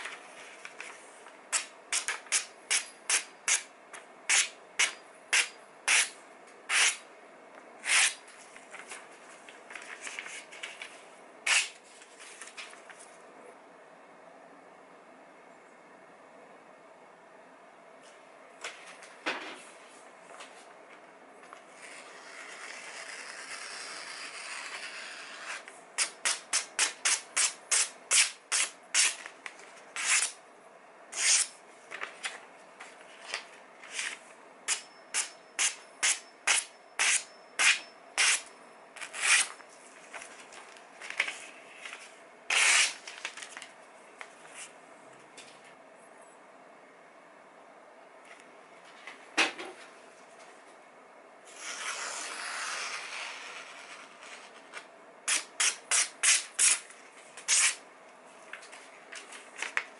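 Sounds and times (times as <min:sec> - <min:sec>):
paper rustling: 0:08.3 - 0:13.2, 0:39.0 - 0:44.8, 0:58.5 - 0:59.9.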